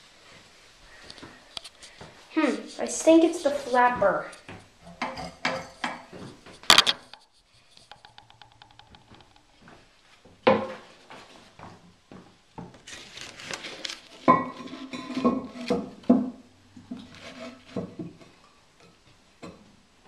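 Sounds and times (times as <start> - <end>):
porcelain lid knocking and scraping: 4.8 - 9.4, 14.2 - 18.3.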